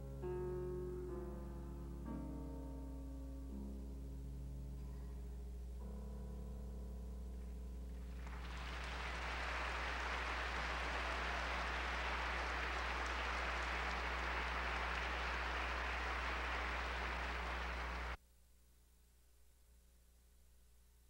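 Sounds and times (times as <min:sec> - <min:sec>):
audience applauding: 0:08.0 - 0:18.2.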